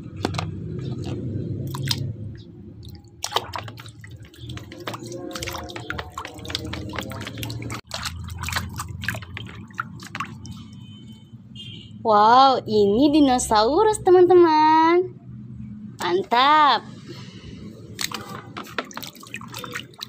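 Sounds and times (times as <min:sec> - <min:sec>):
small splashes and drips: 0:00.2 - 0:11.2, 0:17.8 - 0:20.0
hand swishing in water: 0:03.2 - 0:10.8, 0:17.9 - 0:20.0.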